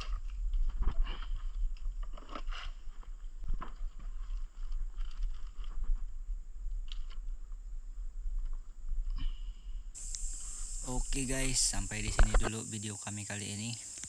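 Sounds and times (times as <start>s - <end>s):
steady low rumble: 6.4s - 12.5s.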